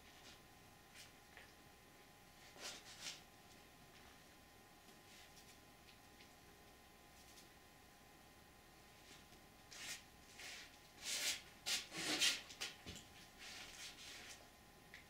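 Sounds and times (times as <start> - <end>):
rustling and scraping: 2.4 - 3.3, 9.0 - 14.5.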